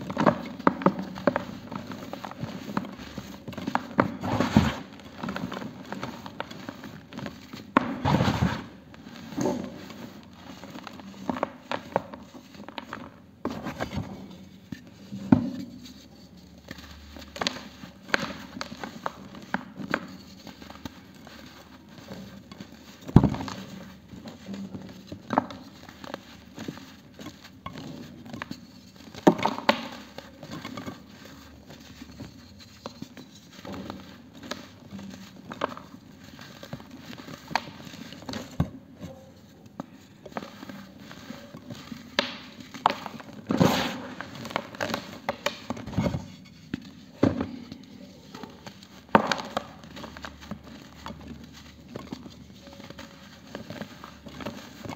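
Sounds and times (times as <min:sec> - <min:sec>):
hands crushing dry cement: 0:16.6 - 0:39.0, 0:39.8 - 0:46.0.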